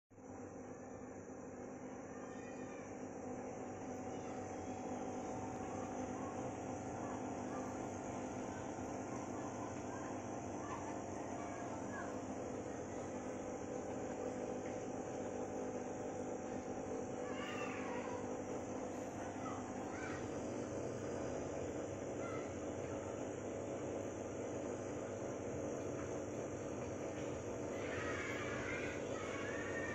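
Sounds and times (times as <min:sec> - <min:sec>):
aquarium air pump humming: 0:00.2 - 0:29.9
faint animal calls: 0:22.2 - 0:23.0.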